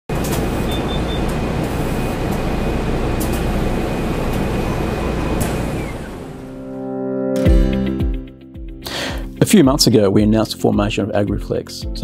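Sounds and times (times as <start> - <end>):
machine low rumble: 0.1 - 6.9.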